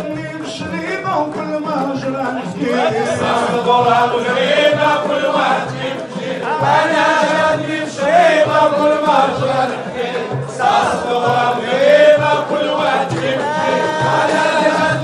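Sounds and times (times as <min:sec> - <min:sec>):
man singing into a microphone: 0:00.0 - 0:06.6
men singing in unison: 0:00.0 - 0:15.0.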